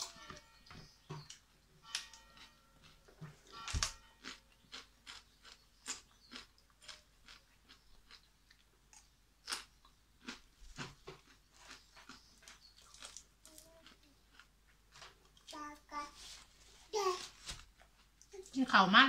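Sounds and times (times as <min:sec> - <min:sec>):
person chewing crunchy vegetables: 0:01.2 - 0:15.6.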